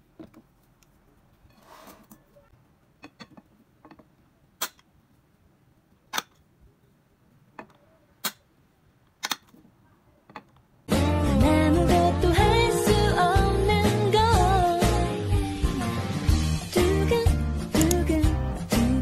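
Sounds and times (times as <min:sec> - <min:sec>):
pop song with singing: 0:10.9 - 0:19.0.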